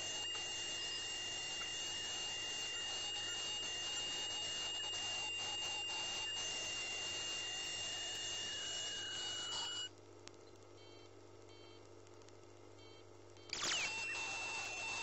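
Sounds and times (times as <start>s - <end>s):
ultrasonic scaler whine: 0.0s - 9.9s, 13.6s - 15.0s.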